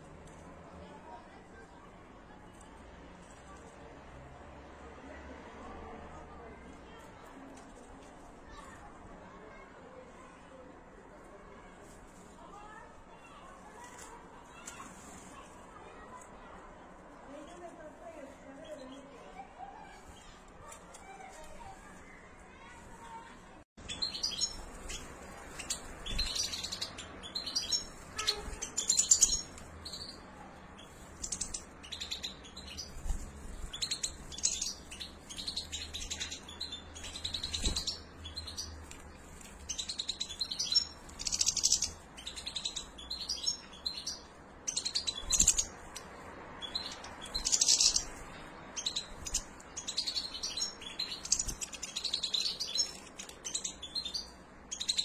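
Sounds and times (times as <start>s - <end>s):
goldfinches chirping: 39.6s - 55.0s.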